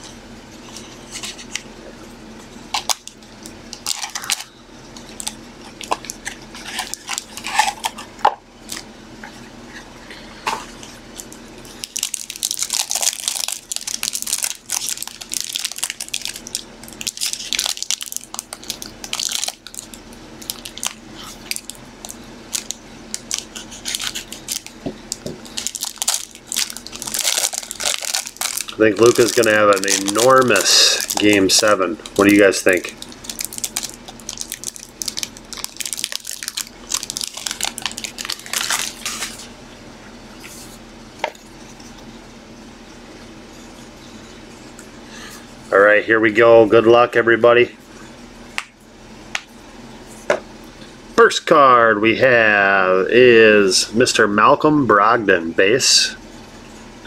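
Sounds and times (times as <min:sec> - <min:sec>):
cardboard and foil crinkling: 0:03.8 - 0:08.1, 0:10.2 - 0:39.5.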